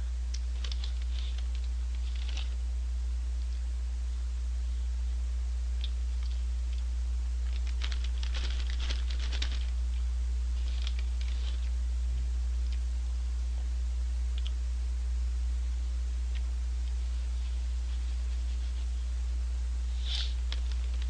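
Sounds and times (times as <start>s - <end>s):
low hum: 0.0s - 21.0s
paper bag crinkling: 0.5s - 2.6s, 7.4s - 9.8s, 10.6s - 11.7s.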